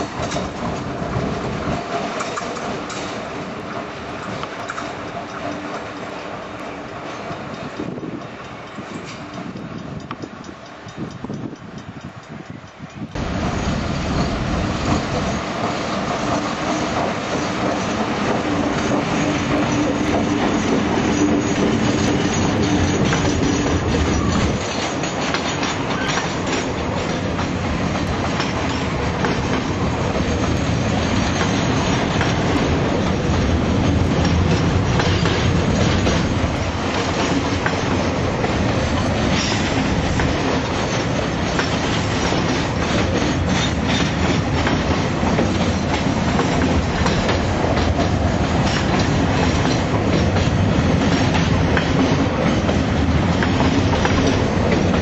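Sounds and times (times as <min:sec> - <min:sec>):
diesel locomotive engine: 0:00.0 - 0:55.0
wheels clacking over rail joints: 0:00.0 - 0:55.0
train wheel squeal: 0:02.2 - 0:27.6, 0:28.3 - 0:33.6, 0:34.2 - 0:38.2, 0:38.9 - 0:52.7
freight wagons rumbling: 0:13.1 - 0:55.0.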